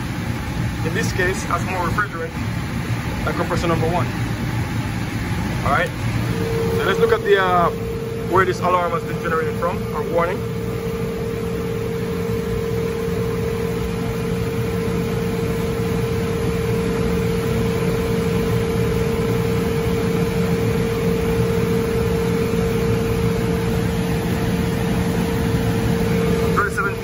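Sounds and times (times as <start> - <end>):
air conditioning unit humming: 0.0 - 27.0
rushing air noise: 5.1 - 10.8.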